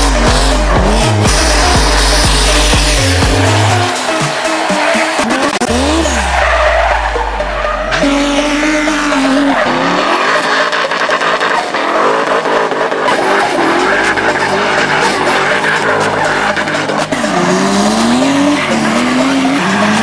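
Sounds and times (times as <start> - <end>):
car engines revving hard: 0.0 - 20.0
tyres squealing: 0.0 - 20.0.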